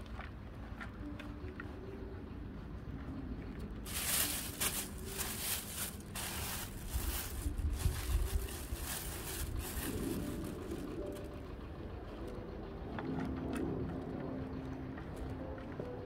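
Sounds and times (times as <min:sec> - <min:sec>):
plastic bag crinkling: 0:03.8 - 0:11.3.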